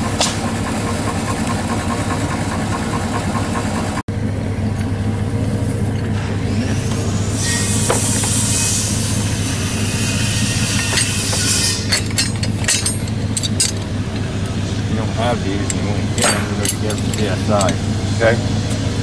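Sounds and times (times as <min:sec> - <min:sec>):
vehicle engine idling: 0:00.0 - 0:19.0
hiss: 0:06.6 - 0:11.8
sharp metallic clinks: 0:10.2 - 0:14.6, 0:15.6 - 0:17.8.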